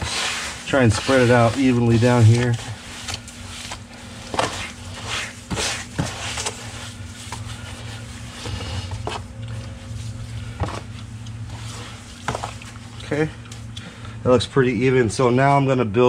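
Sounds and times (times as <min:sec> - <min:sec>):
hand scraping wet sand underwater: 0:00.0 - 0:08.5
steady low hum: 0:00.0 - 0:16.0.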